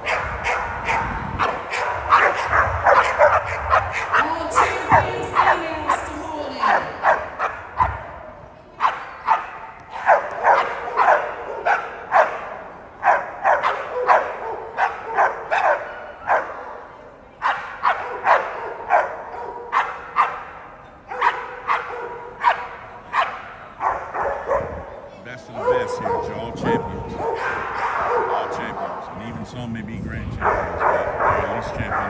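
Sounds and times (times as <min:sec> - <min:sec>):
dogs barking: 0:00.0 - 0:29.1, 0:30.4 - 0:32.0.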